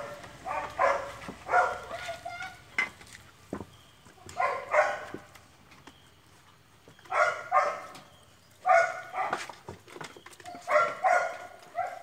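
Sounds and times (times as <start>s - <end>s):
puppy yapping: 0.0s - 2.0s, 4.4s - 5.2s, 8.6s - 9.5s, 10.5s - 12.0s.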